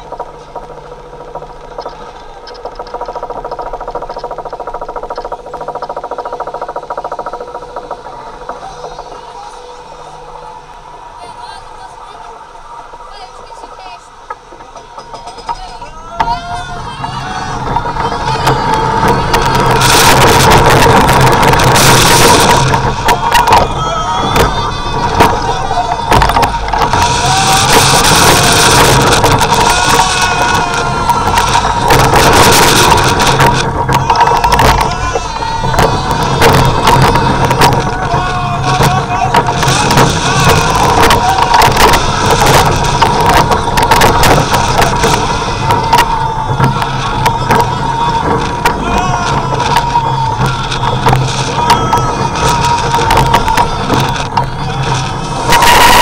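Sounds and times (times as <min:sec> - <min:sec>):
low mechanical hum: 0:00.0 - 0:56.0
riders yelling: 0:00.0 - 0:56.0
roller coaster ratchet clacking: 0:00.0 - 0:56.0
wind on microphone: 0:14.2 - 0:56.0.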